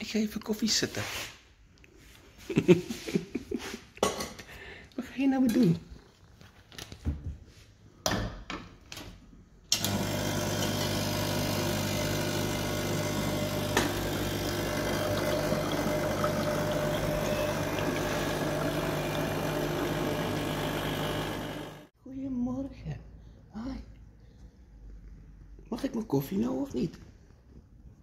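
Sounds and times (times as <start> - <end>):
coffee machine humming: 9.7 - 21.9.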